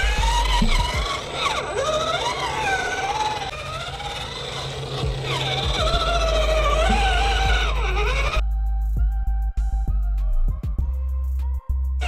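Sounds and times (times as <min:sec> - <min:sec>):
steady bass: 0:00.0 - 0:01.4, 0:05.0 - 0:12.0
sliding melody line: 0:04.8 - 0:08.4.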